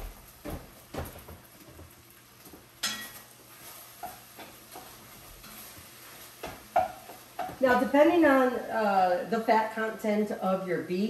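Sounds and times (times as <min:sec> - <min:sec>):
meat sizzling in a frying pan: 0:00.0 - 0:09.6
utensil clanking against pan: 0:06.4 - 0:07.8.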